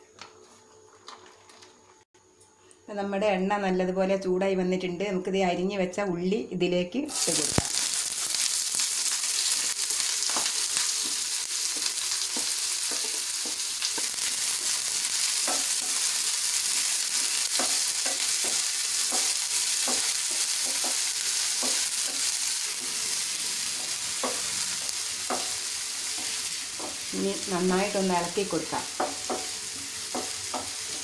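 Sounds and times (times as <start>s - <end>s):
onion sizzling in oil: 7.1s - 31.0s.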